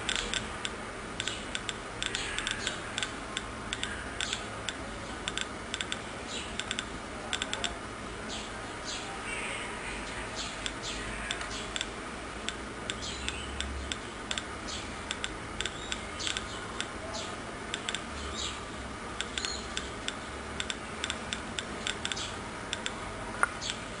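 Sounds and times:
geiger counter clicking: 0.0s - 7.8s, 10.5s - 24.0s.

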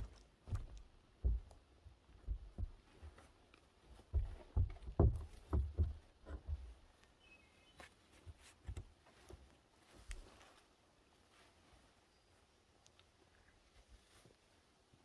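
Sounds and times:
dull thumps and knocks: 0.0s - 3.3s, 4.0s - 6.8s
boots stepping on wood: 0.0s - 6.8s.

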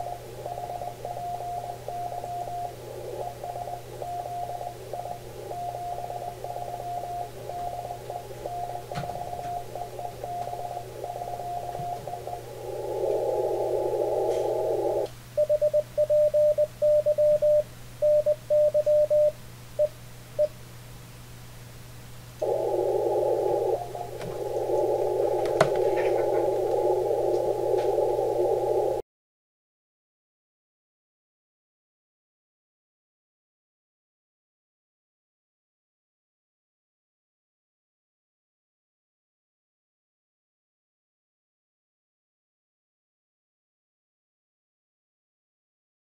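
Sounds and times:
loud clean morse code sidetone: 0.0s - 12.5s, 15.4s - 20.5s, 22.4s - 28.9s
radio hiss: 0.0s - 15.1s, 22.4s - 29.0s
weak morse code: 0.0s - 20.5s, 22.4s - 29.0s
steady low hum: 0.0s - 29.0s.

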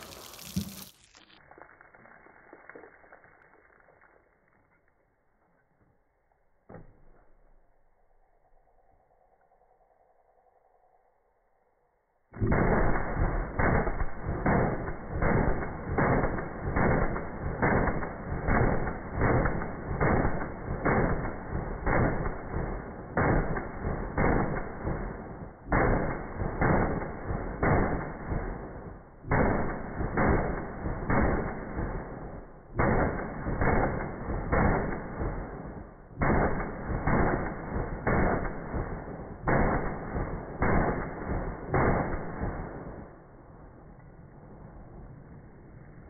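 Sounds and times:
slowed rapid rifle gunshots: 12.4s - 43.4s.

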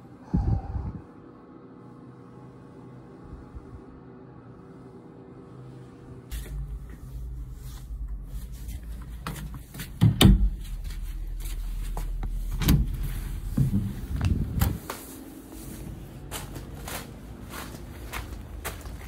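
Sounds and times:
footsteps in slippers: 6.3s - 19.0s.

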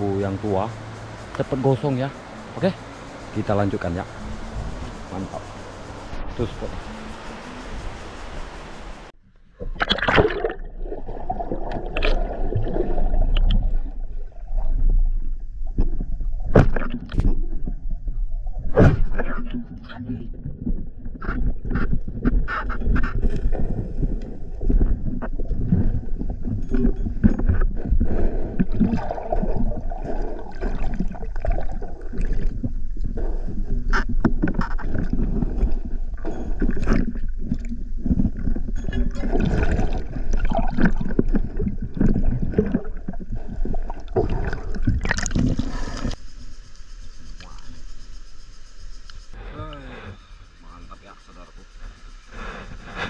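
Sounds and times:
knocks and scrapes underwater: 9.5s - 46.2s
underwater gurgling rumble: 9.5s - 46.2s.

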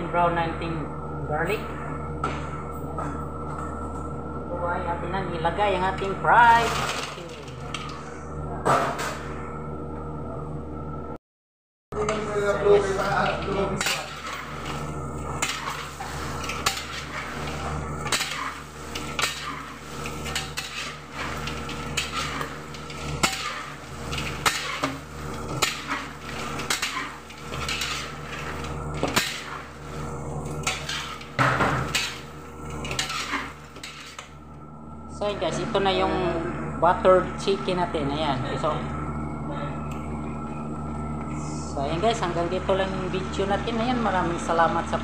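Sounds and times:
steady low hum: 0.0s - 11.2s, 12.0s - 45.0s
metal utensils clanking on a wok: 13.2s - 29.7s, 30.5s - 34.3s.

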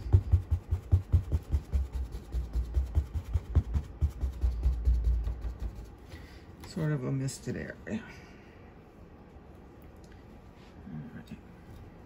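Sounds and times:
paintbrush tapping on canvas: 0.0s - 6.0s.

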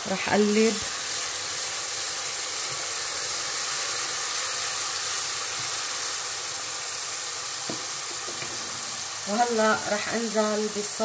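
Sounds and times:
sauce sizzling in hot oil: 0.0s - 11.0s.

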